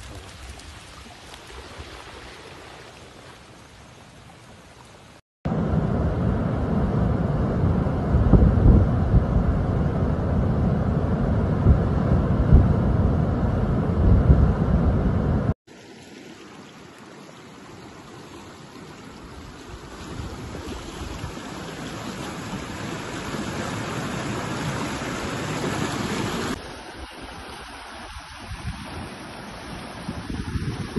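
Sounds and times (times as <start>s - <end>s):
flood water rushing: 15.7s - 30.9s
torrent and waterfalls pouring: 15.7s - 30.9s.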